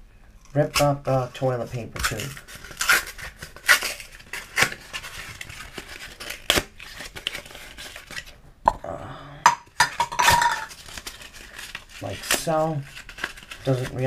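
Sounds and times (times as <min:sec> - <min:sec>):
cardboard crinkling: 0:01.1 - 0:08.3, 0:10.3 - 0:14.0
cardboard tube being torn: 0:05.7 - 0:07.5.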